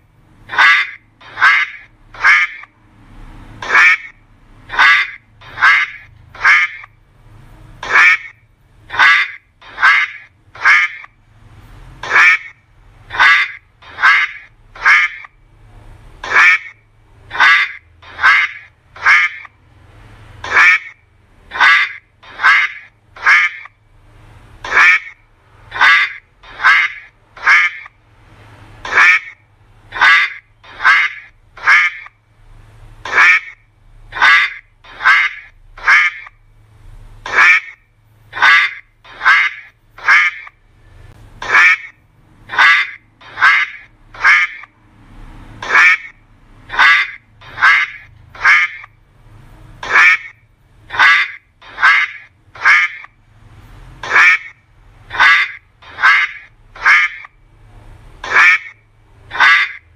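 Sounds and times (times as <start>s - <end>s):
duck quacking: 0.5s - 2.7s, 3.6s - 7.0s, 7.8s - 11.2s, 12.0s - 15.4s, 16.2s - 19.6s, 20.3s - 23.8s, 24.6s - 28.0s, 28.8s - 32.2s, 33.0s - 36.4s, 37.2s - 40.6s, 41.4s - 44.7s, 45.6s - 49.0s, 49.8s - 53.2s, 54.0s - 57.4s, 58.2s - 59.9s.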